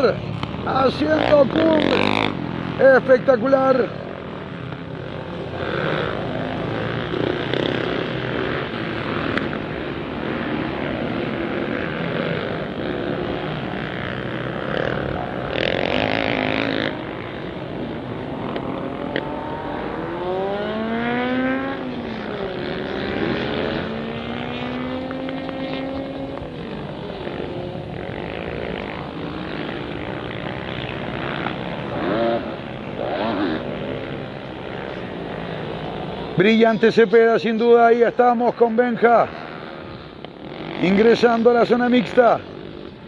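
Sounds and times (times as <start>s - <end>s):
distant motorcycle engines droning: 0.0s - 43.0s
motorcycle engine revving: 0.0s - 43.0s.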